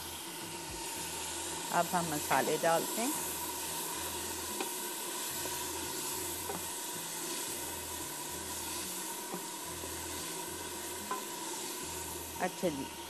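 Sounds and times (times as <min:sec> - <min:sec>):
food sizzling in oil: 0:00.0 - 0:13.0
wooden spoon tapping pot: 0:06.4 - 0:06.7.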